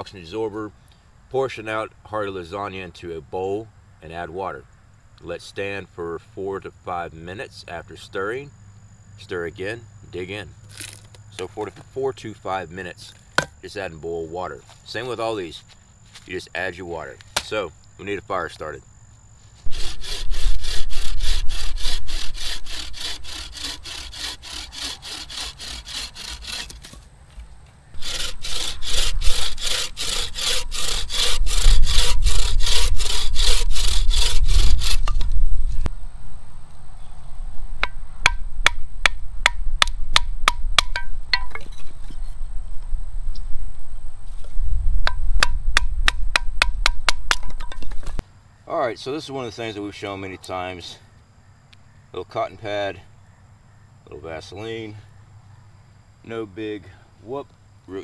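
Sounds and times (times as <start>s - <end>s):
bucksaw cutting branches: 19.6s - 35.4s.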